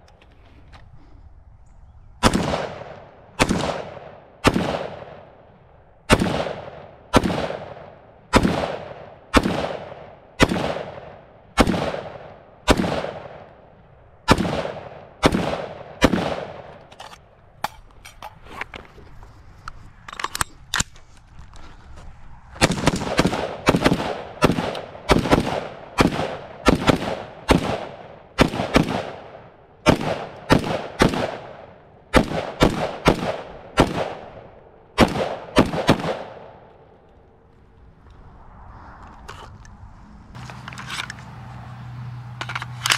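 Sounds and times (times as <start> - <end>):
rifle shots echoing: 2.2 - 16.8, 22.6 - 37.2
handling clicks: 40.4 - 41.3, 42.4 - 42.9.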